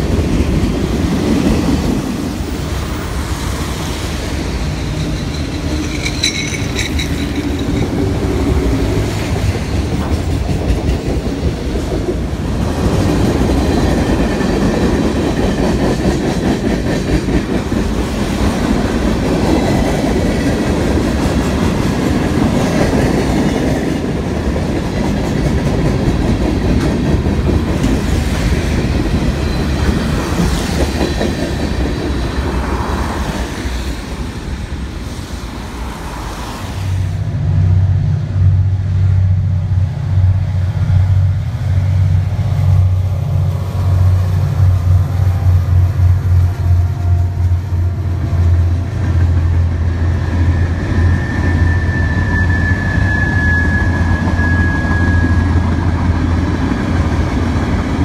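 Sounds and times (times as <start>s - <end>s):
train wheels clattering over rail joints: 4.4s - 32.6s
locomotive engine drone: 37.2s - 58.0s
thin wheel squeal: 50.6s - 55.7s.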